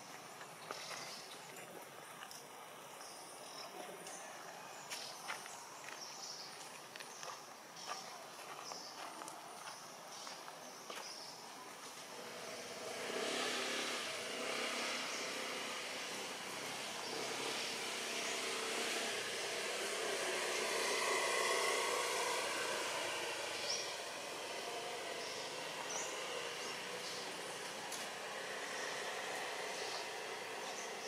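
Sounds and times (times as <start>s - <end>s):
distant engine drone: 12.1s - 31.0s.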